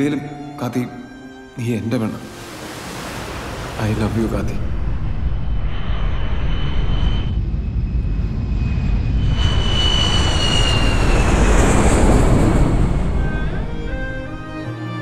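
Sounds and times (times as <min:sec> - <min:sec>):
high jet engine whine: 0:02.2 - 0:14.8
jet engines rumbling overhead: 0:02.3 - 0:14.6.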